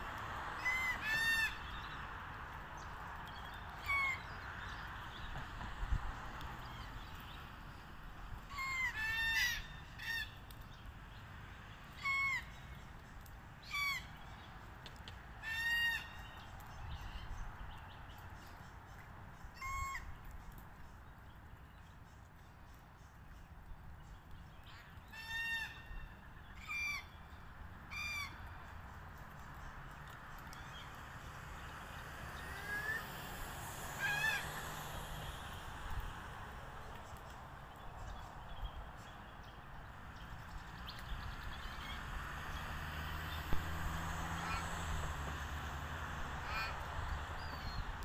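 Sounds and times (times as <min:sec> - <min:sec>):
cockatoo rasping calls: 0:19.6 - 0:20.1.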